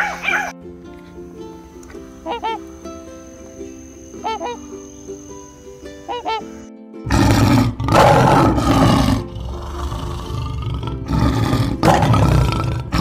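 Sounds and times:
goose honking: 0:00.0 - 0:00.6, 0:02.2 - 0:02.7, 0:04.2 - 0:04.8, 0:06.0 - 0:06.7
lion roaring: 0:07.1 - 0:13.0.

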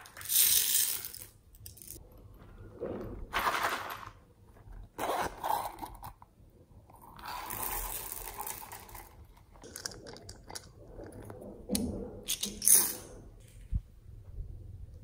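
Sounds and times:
beads pouring onto a tray: 0:00.0 - 0:02.0.

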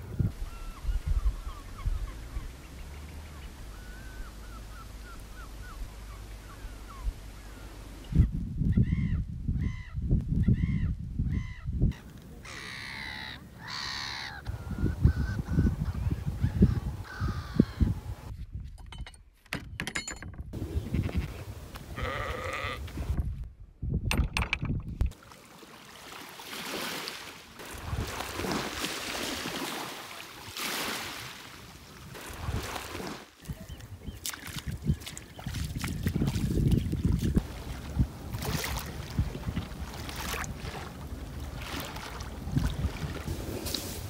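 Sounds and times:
wind rumbling on microphone: 0:00.0 - 0:12.6, 0:14.0 - 0:19.2, 0:20.3 - 0:25.2, 0:27.7 - 0:28.9, 0:32.0 - 0:44.0
birds calling: 0:00.2 - 0:18.3, 0:33.4 - 0:37.1.

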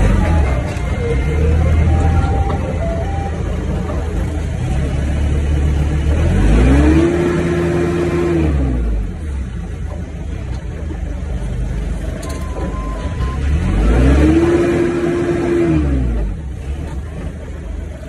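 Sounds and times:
forklift engine revving: 0:00.0 - 0:18.0.

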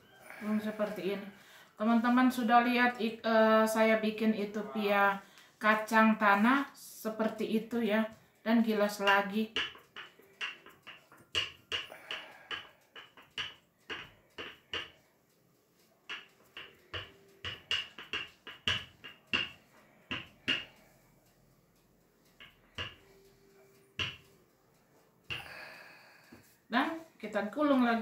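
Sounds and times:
rolling pin clacking on table: 0:09.1 - 0:15.0, 0:16.1 - 0:20.7.

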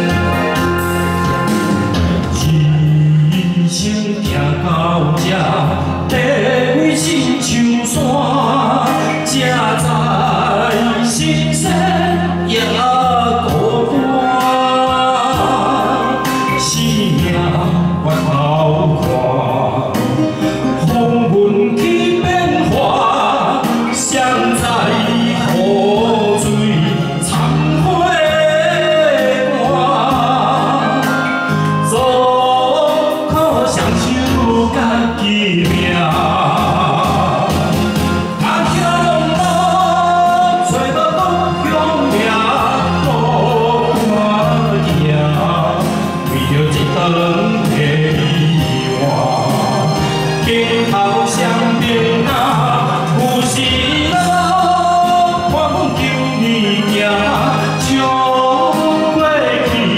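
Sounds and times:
man singing into microphone: 0:00.0 - 0:59.9
musical accompaniment: 0:00.0 - 0:59.9.

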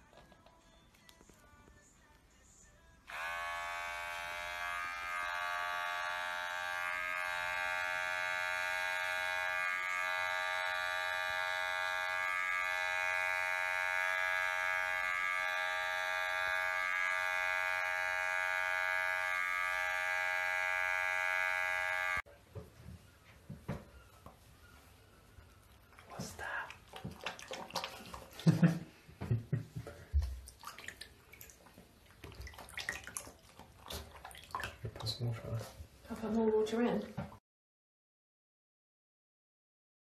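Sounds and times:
electric pet clipper buzzing: 0:03.1 - 0:22.3.

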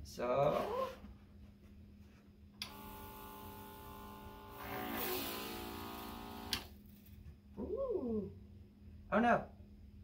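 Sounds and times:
sprayer pump motor whine: 0:02.7 - 0:06.6.

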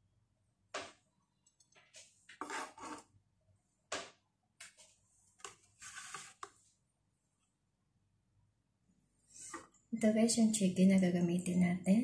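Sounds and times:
knife scraping across board: 0:02.3 - 0:03.1, 0:05.4 - 0:06.5.

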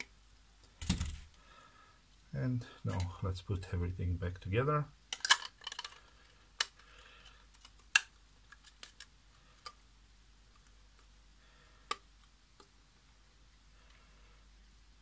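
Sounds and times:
plastic parts clicking: 0:05.1 - 0:09.8.

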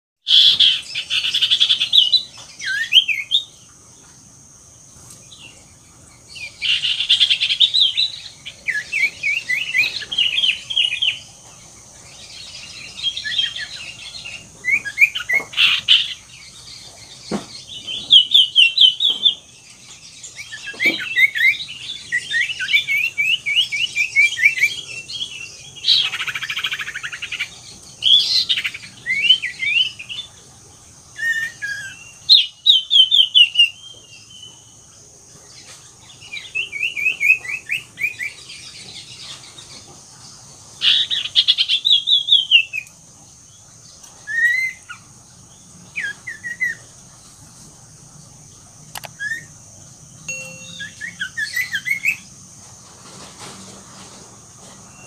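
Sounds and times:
bird chirping and trilling: 0:00.3 - 0:03.7, 0:12.1 - 0:30.3, 0:49.0 - 0:49.6, 0:50.2 - 0:52.3.

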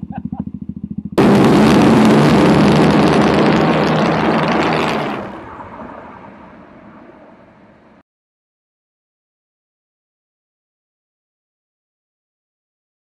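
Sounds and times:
motorcycle engines revving hard: 0:01.1 - 0:05.4.

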